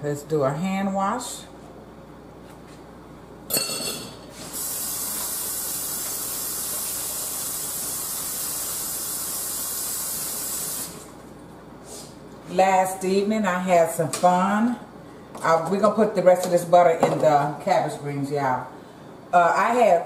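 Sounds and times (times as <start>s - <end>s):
water running from tap: 4.4s - 11.2s.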